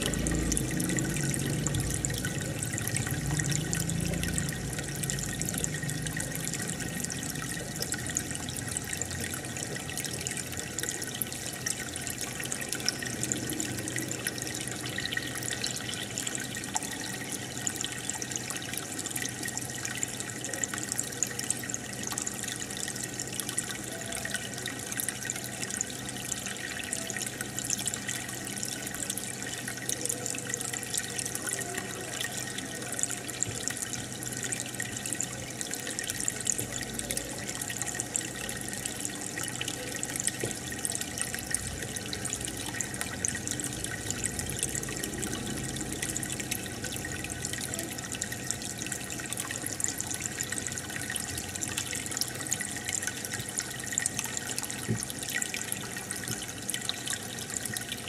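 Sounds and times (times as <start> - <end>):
air stone bubbling: 0.0 - 19.4, 33.0 - 55.4
filter water running: 0.0 - 58.0
low pump hum: 0.0 - 58.0.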